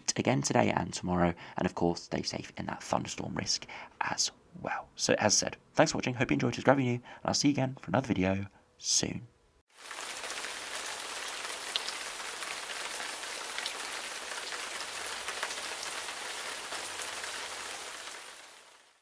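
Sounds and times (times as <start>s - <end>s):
steady rain: 9.7s - 19.0s
raindrop ticks: 9.9s - 17.6s.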